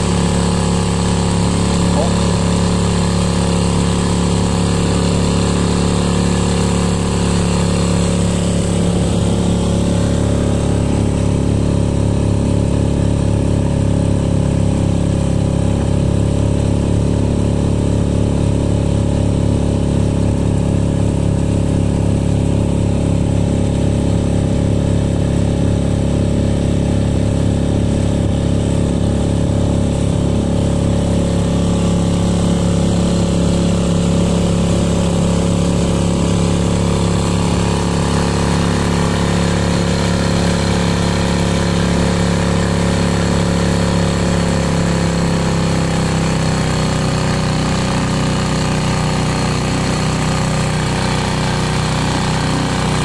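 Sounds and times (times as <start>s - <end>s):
outboard motor running: 0.0s - 53.0s.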